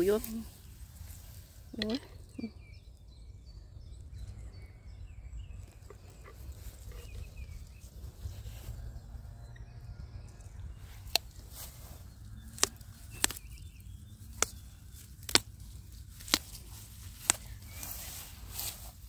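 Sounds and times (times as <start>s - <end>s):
low steady rumble: 0.0s - 19.0s
plant stems snapping: 11.0s - 19.0s.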